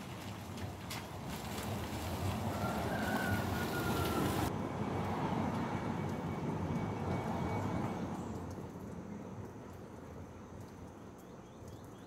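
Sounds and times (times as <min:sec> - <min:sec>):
passing vehicle rumble: 0:00.6 - 0:09.2.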